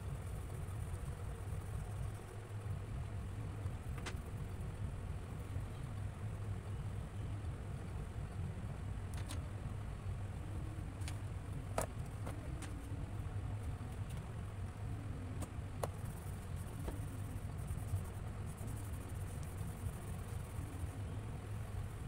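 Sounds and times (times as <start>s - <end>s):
steady low hum: 0.0s - 22.0s
light clicks and taps of pastels: 3.6s - 4.3s, 15.4s - 20.6s.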